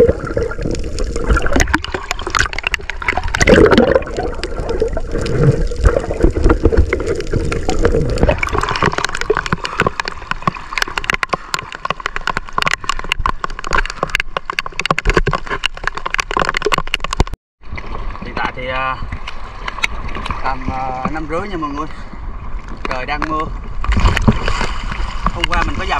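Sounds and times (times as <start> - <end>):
rain pattering on sea: 0.0 - 17.3
choppy waves: 0.0 - 25.9
muffled underwater sloshing: 0.0 - 25.9.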